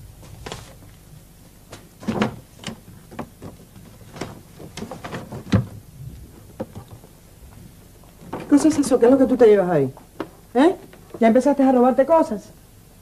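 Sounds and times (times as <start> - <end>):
household objects knocking and clicking: 6.4 - 7.1.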